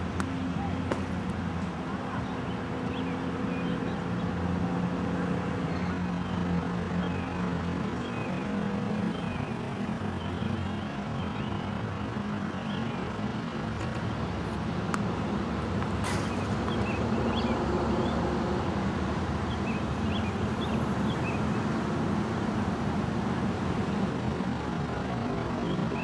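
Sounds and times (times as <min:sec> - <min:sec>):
distant traffic rumble: 0:00.0 - 0:26.0
birds chirping: 0:01.8 - 0:04.5, 0:05.5 - 0:13.4, 0:16.3 - 0:18.8, 0:19.4 - 0:21.7.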